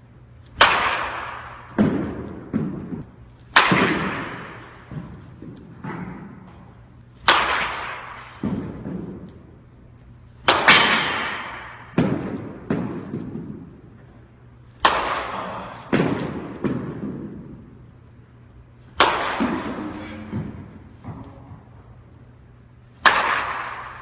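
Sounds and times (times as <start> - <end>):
bat cracking ball: 0.5 - 9.7, 10.4 - 14.2, 14.8 - 17.9, 18.8 - 21.7, 22.8 - 24.0.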